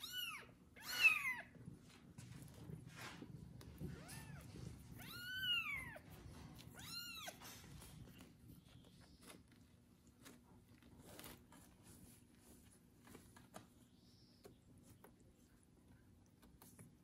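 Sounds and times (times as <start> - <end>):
kitten meowing: 5.0 - 6.0, 6.7 - 7.4.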